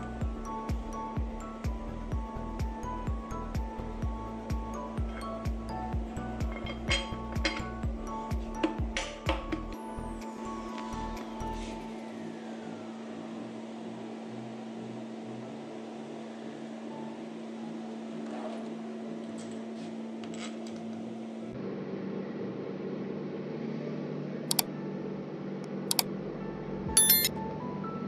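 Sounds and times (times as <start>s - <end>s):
mouse-click sound effects: 27.0s - 27.3s.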